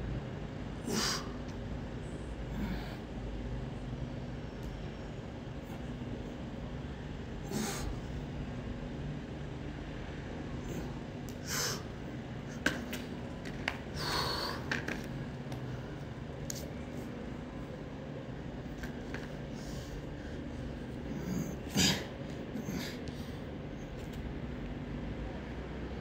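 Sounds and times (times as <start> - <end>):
low background hum: 0.0 - 26.0
breathy exhalations: 14.0 - 14.7.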